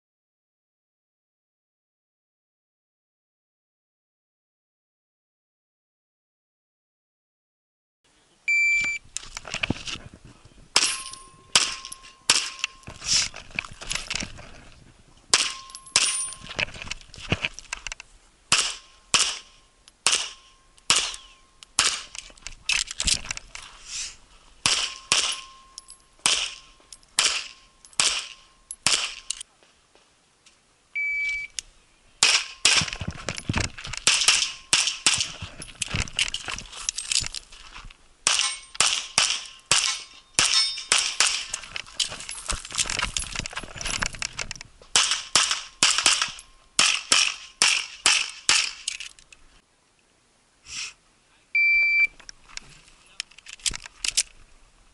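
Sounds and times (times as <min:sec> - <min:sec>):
shot timer beep: 0:08.5 - 0:09.0, 0:31.0 - 0:31.6, 0:51.6 - 0:52.1
pistol shots: 0:10.8 - 0:12.8, 0:15.3 - 0:16.2, 0:18.5 - 0:22.1, 0:24.6 - 0:25.6, 0:26.2 - 0:26.6, 0:27.2 - 0:29.3, 0:34.0 - 0:35.3, 0:38.2 - 0:41.6, 0:45.0 - 0:48.8.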